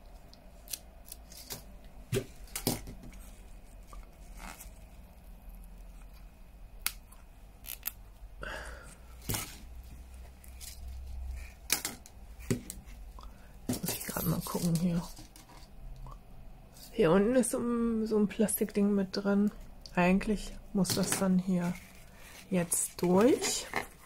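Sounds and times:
ribbon rustling: 0:00.1 - 0:08.1, 0:09.0 - 0:15.8, 0:21.0 - 0:24.0.

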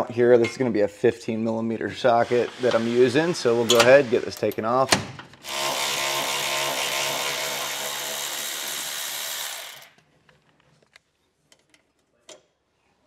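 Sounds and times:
electric ratchet running: 0:05.4 - 0:10.0.

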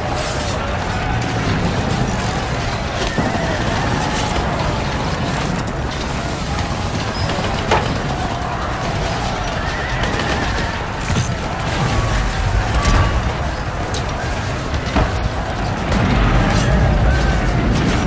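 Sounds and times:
battle din: 0:00.0 - 0:18.0
weapons clashing: 0:00.0 - 0:18.0.

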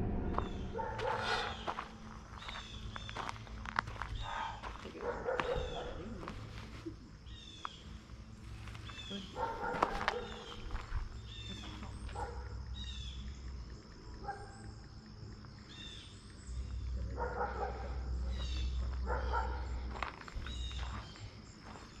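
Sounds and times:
low rumble: 0:00.0 - 0:04.8
birds chirping: 0:00.0 - 0:22.0
high insect drone: 0:00.0 - 0:22.0.

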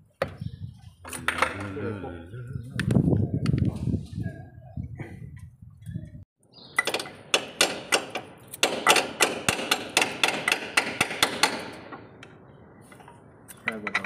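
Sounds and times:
hammer striking steel: 0:06.8 - 0:12.0.

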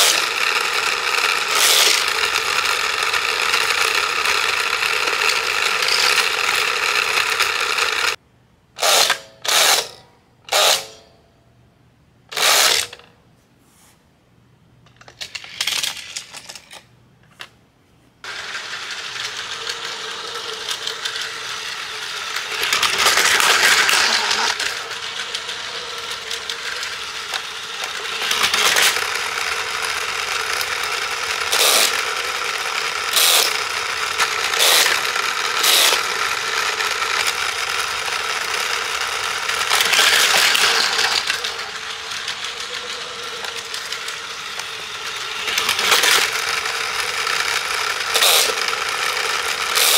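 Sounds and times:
toy train motor whine: 0:00.0 - 0:08.2, 0:08.8 - 0:11.1, 0:12.3 - 0:13.1, 0:15.0 - 0:16.8, 0:18.2 - 0:49.9
plastic rattling on track: 0:22.3 - 0:49.9.

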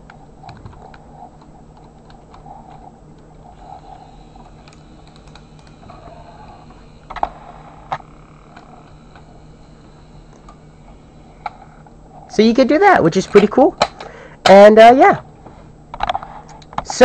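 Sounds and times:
toy motor and gears clicking: 0:01.8 - 0:09.4.

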